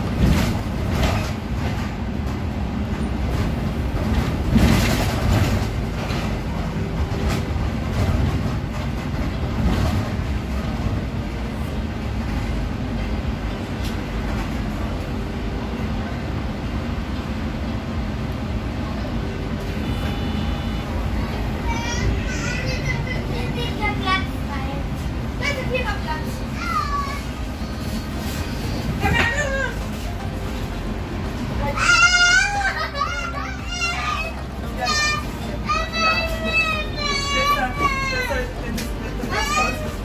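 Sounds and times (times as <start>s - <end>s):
knocks and rattles over bumps: 0.0s - 12.6s
bus engine and road rumble: 0.0s - 40.0s
brief tone: 19.8s - 21.0s.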